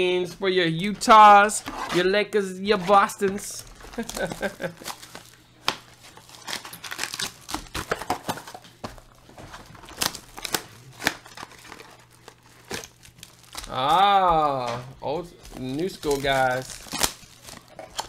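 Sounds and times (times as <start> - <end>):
foil packs crinkling: 2.8 - 18.0.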